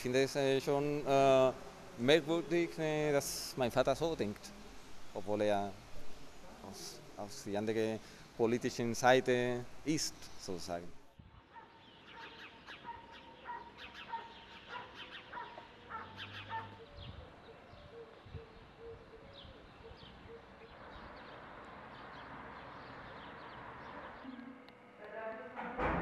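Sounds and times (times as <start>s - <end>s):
soft hiss: 0.4s - 11.1s
small birds chirping: 11.3s - 24.4s.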